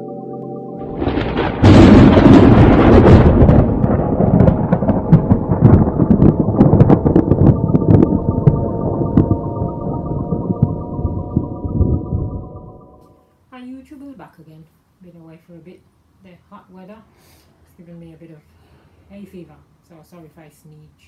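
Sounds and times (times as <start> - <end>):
synth music tones: 0.0 - 1.6, 3.6 - 13.3
thunder crack and rumble: 0.8 - 13.0.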